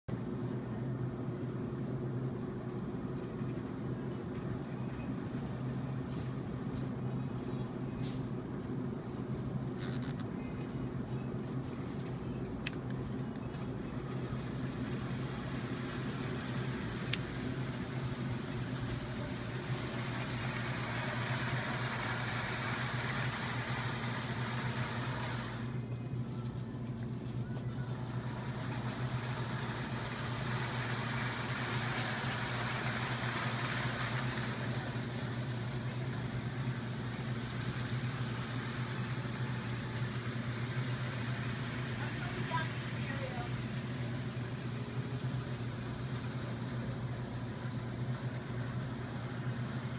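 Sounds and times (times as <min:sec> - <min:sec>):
steady low hum: 0:00.1 - 0:49.9
model train rumbling on track: 0:13.9 - 0:25.8, 0:27.9 - 0:49.9.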